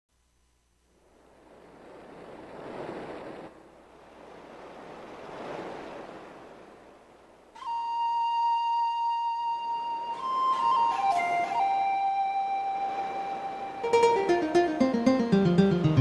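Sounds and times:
ocean surf waves: 0.9s - 16.0s
held wind instrument note: 7.6s - 16.0s.

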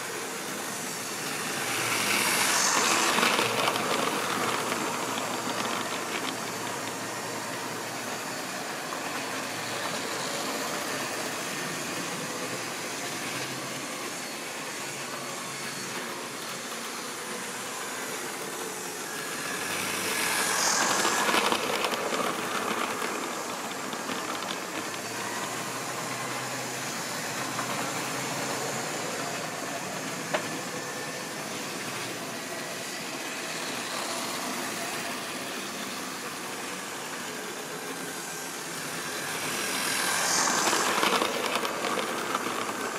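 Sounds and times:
model train running on track: 0.0s - 42.9s.

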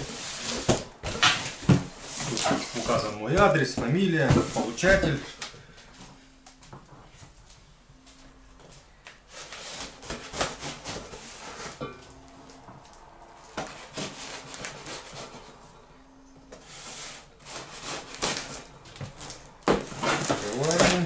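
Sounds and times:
tape and cardboard crackling: 0.0s - 15.6s, 16.5s - 21.0s
knife slitting packing tape: 13.7s - 15.3s, 17.1s - 21.0s.

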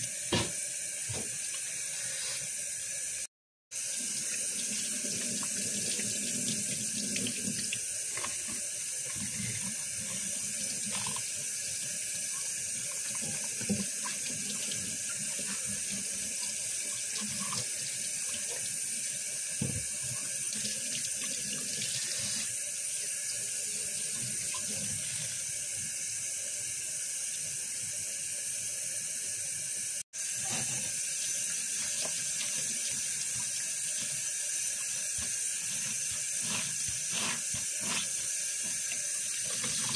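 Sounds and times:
tap water running into sink: 3.8s - 22.4s, 30.2s - 39.9s.

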